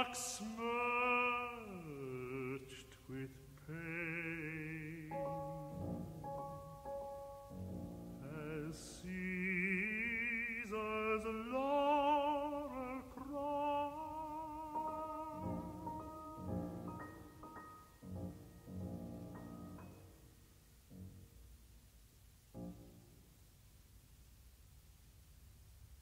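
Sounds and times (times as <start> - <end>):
tenor singing with vibrato: 0.0 - 18.8
soft piano chords: 3.2 - 23.6.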